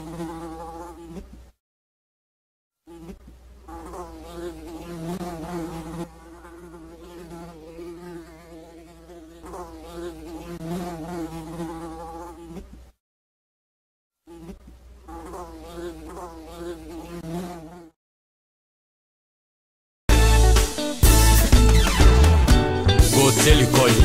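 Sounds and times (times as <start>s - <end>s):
housefly buzzing: 0.0s - 1.6s, 2.9s - 13.0s, 14.3s - 18.0s, 20.2s - 24.0s.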